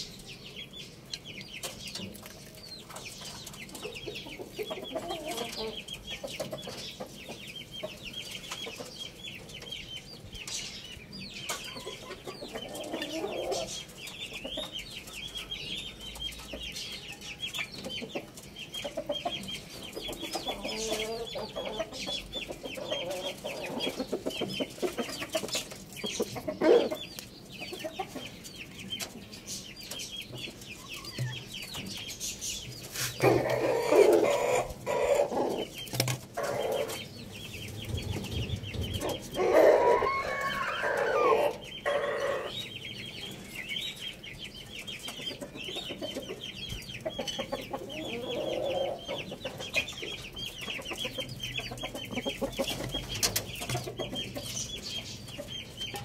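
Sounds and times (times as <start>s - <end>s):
hens clucking: 1.2s - 56.0s
rooster calling: 39.0s - 42.5s.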